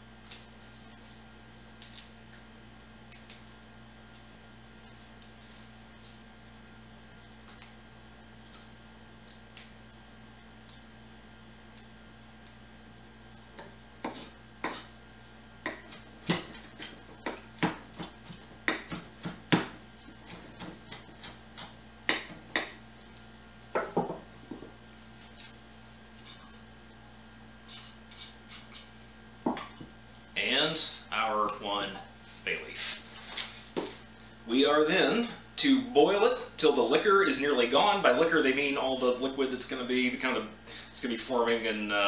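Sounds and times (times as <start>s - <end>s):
knife chopping on wooden board: 13.6s - 14.9s, 15.6s - 22.8s.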